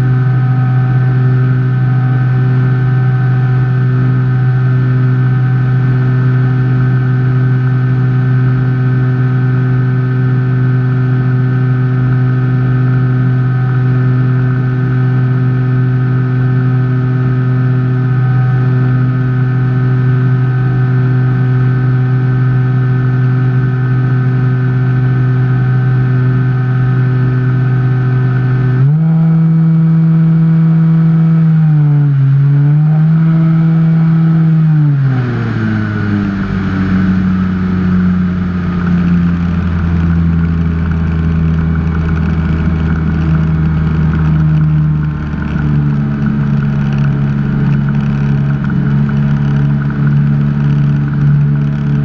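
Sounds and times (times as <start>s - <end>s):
electric motor and propeller: 32.2s - 52.0s.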